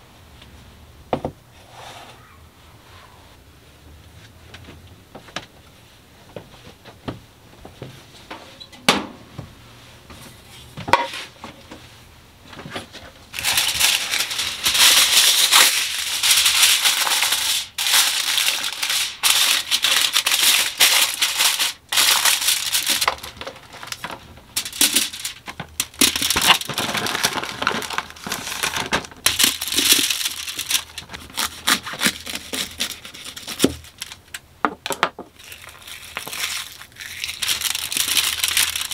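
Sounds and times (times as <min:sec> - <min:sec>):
aluminium foil crinkling: 0:13.3 - 0:34.4, 0:35.4 - 0:38.9.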